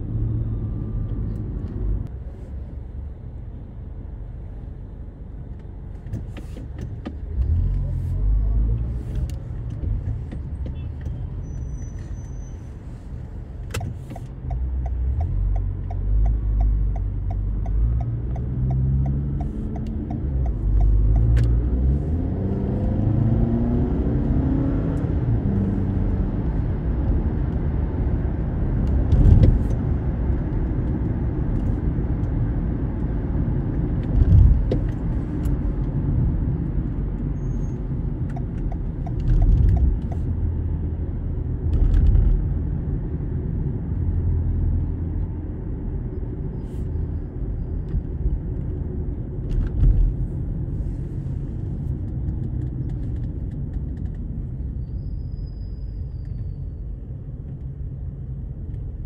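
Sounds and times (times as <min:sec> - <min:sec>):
car engine and tyre rumble: 0:00.0 - 0:59.0
light ticks: 0:13.7 - 0:21.5.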